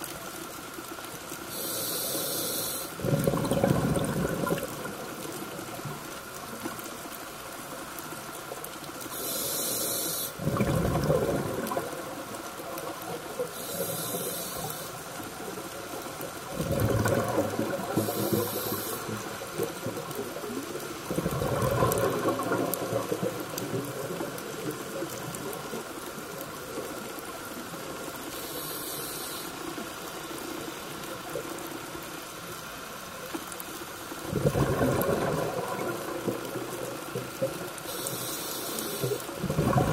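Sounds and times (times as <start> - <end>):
underwater hum: 0.0 - 39.9
regulator inhale hiss: 1.4 - 3.0, 9.1 - 10.4, 13.4 - 15.2, 17.8 - 19.4, 28.3 - 29.8, 37.8 - 39.4
bubbling exhaust: 3.0 - 4.8, 10.4 - 11.9.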